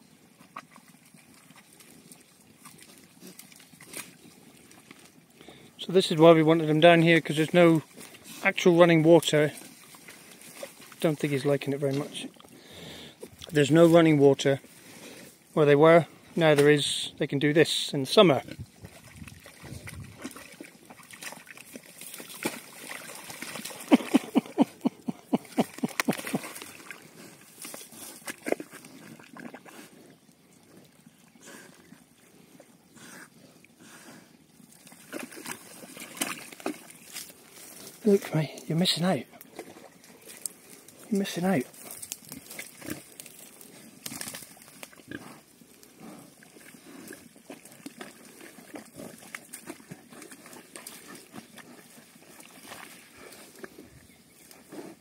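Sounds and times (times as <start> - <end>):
pigs grunting: 18.0 - 55.0
water sloshing: 18.4 - 29.6, 34.8 - 38.1
pig grunting: 22.3 - 30.1, 45.0 - 53.9.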